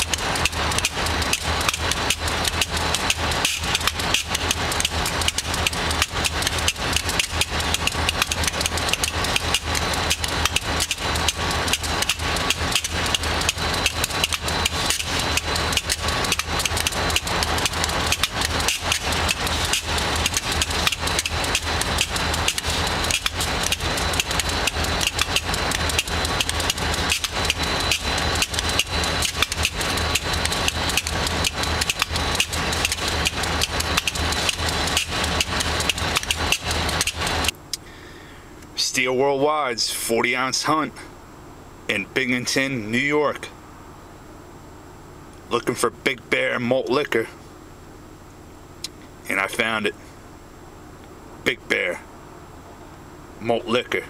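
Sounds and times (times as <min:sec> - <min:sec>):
irregular clatter: 0:00.0 - 0:37.6
locomotive engine idling: 0:00.0 - 0:41.0
faint high whine: 0:00.0 - 0:54.0.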